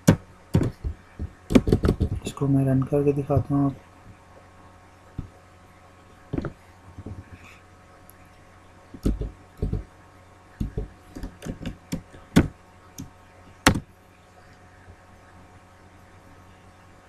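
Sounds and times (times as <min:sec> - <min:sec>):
computer keyboard typing: 0:09.0 - 0:09.8.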